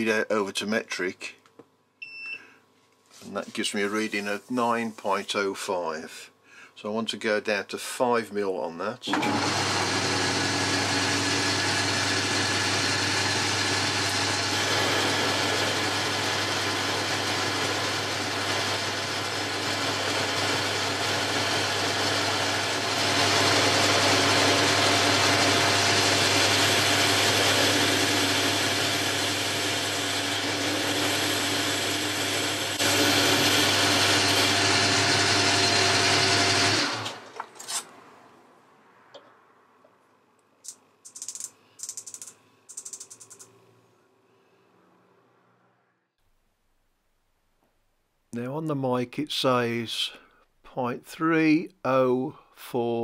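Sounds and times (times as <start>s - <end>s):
lathe cutting metal: 9.1s - 37.2s
motor and gears humming: 9.1s - 37.7s.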